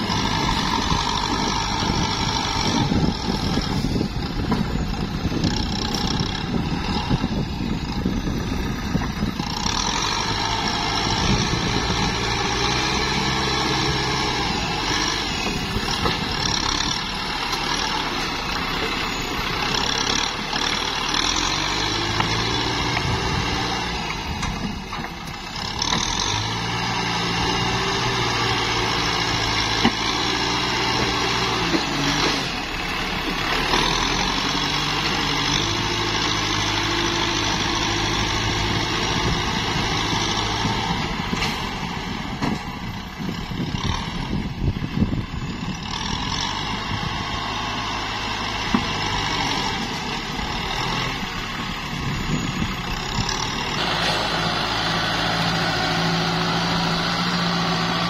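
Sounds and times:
dozer blade pushing wet mud: 0:00.0 - 0:58.0
tractor diesel engine under load: 0:00.0 - 0:58.0.

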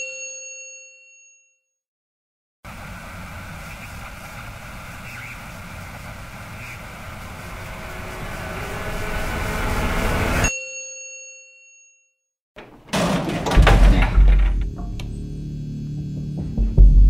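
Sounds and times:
swell of sound: 0:05.9 - 0:10.5
loud clattering and thumps: 0:12.6 - 0:15.0
deep bass: 0:13.6 - 0:17.0.

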